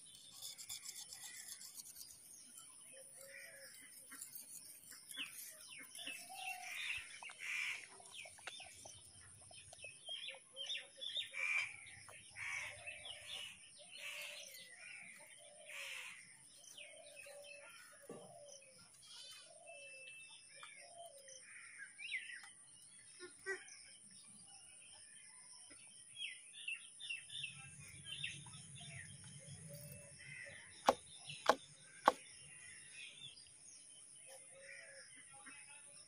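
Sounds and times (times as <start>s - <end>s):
birds chirping and calling: 0.0s - 23.8s.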